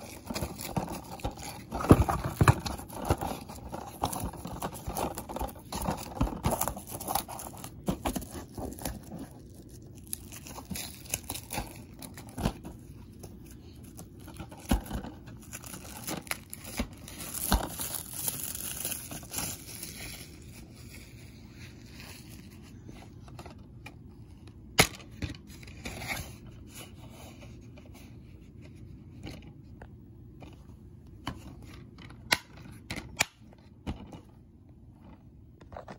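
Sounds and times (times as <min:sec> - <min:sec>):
cellophane crinkling: 0:00.0 - 0:23.6.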